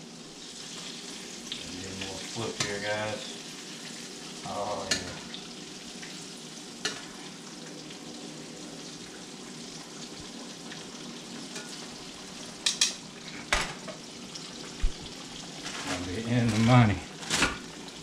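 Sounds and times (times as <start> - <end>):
fish frying in hot oil: 0.0 - 18.0
utensil clicking against pan: 12.6 - 13.0.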